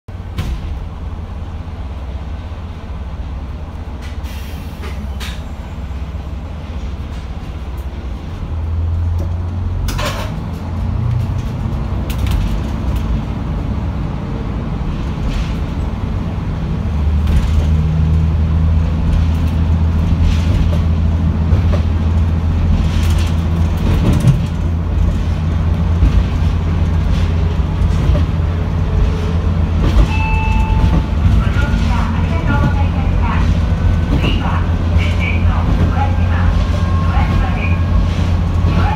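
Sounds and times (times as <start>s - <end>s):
diesel railcar engine drone: 0.1s - 38.9s.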